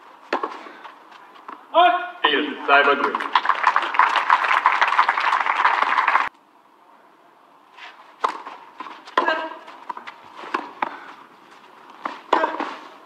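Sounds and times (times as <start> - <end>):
crowd applauding: 3.0 - 6.3
tennis ball struck: 8.2 - 9.6.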